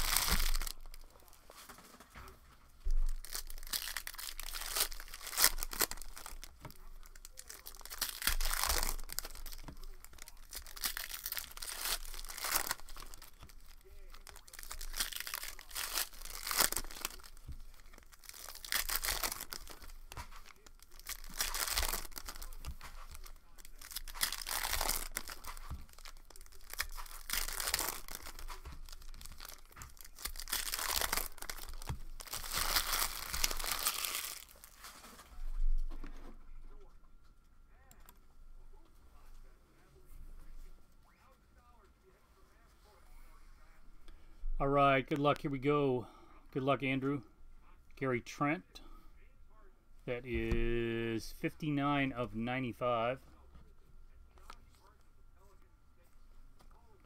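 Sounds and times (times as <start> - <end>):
foil wrappers tearing and crinkling: 0.0 - 2.0, 2.8 - 35.2.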